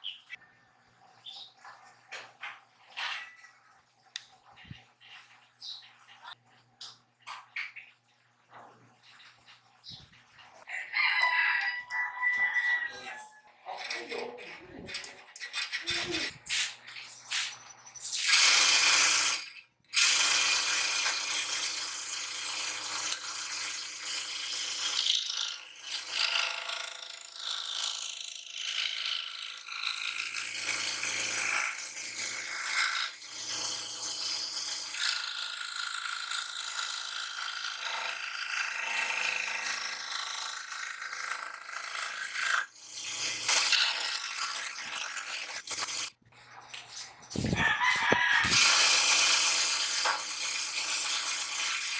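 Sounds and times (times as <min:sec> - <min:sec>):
scroll saw rattling buzz: 0:17.4 - 0:46.2, 0:47.3 - 0:51.9.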